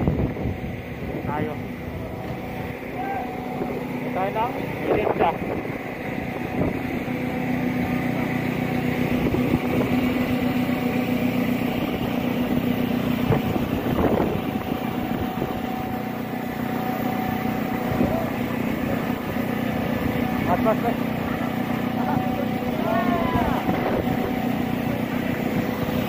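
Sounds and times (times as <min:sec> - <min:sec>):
large engine humming: 0:00.0 - 0:26.0
high held tone: 0:01.5 - 0:09.2
faint voices: 0:20.3 - 0:25.5.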